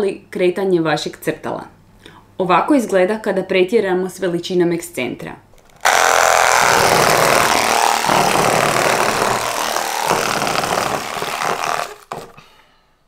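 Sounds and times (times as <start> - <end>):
vibrating motor buzzing rattle: 5.6 - 12.3.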